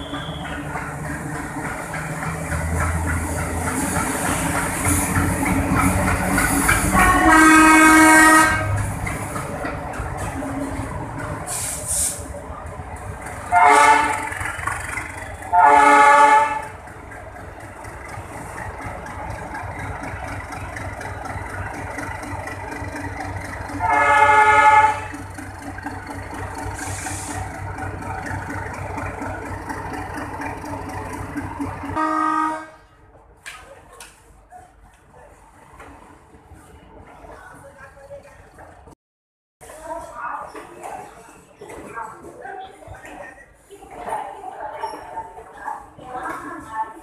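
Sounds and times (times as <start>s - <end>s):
diesel engine rumbling: 0.0s - 33.2s
locomotive horn blasts: 6.9s - 8.8s, 13.5s - 14.4s, 15.5s - 16.8s, 23.8s - 25.2s, 32.0s - 32.9s.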